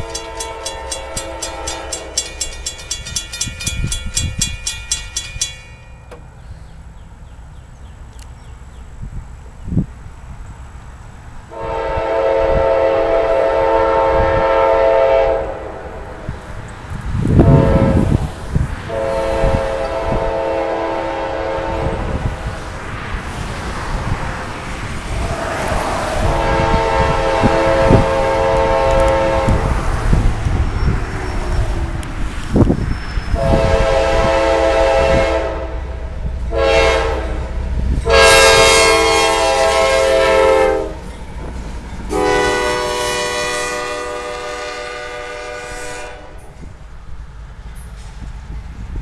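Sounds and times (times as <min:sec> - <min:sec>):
train air horn blasts: 0:00.0 - 0:02.9, 0:11.5 - 0:16.4, 0:17.3 - 0:22.4, 0:26.2 - 0:30.0, 0:33.3 - 0:41.1, 0:42.1 - 0:46.7.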